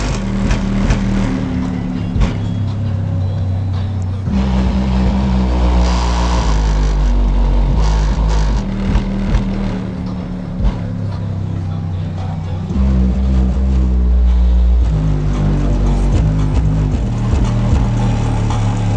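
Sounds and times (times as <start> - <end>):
deep bass music from car: 0.0 - 18.9.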